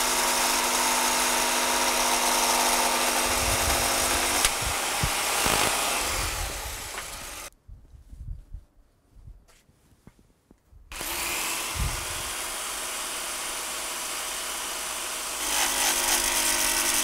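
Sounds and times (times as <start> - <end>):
power tool motor hum: 0.0 - 7.5, 10.9 - 17.0.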